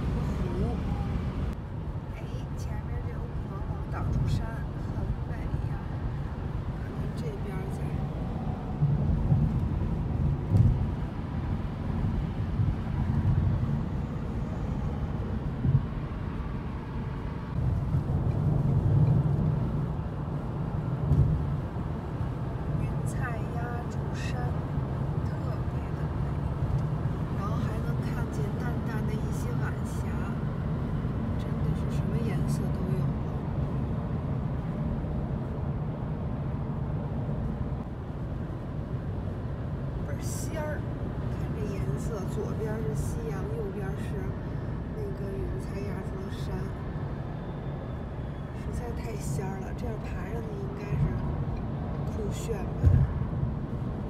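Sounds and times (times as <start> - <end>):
car interior road rumble: 0.0 - 54.0.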